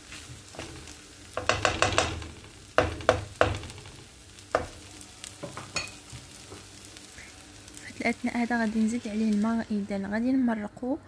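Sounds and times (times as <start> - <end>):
low sizzle: 0.0 - 11.0
spatula knocking against pan: 1.4 - 4.8.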